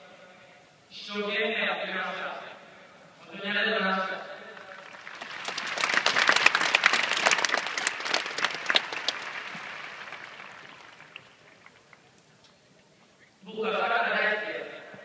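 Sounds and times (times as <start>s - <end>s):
stadium crowd applauding: 4.5s - 12.3s
sharp individual claps: 4.7s - 12.3s.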